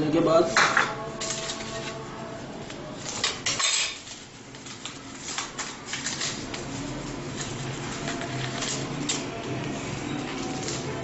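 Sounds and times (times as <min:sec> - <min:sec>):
metal kitchen items clinking: 0:03.1 - 0:04.2.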